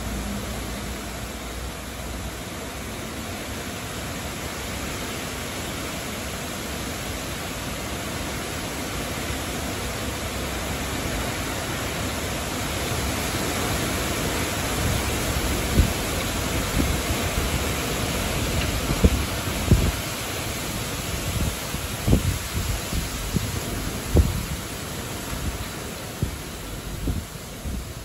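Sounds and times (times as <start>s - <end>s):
wind rustling tree leaves: 0.0s - 28.0s
gust thumping microphone: 18.4s - 20.0s, 21.2s - 24.7s.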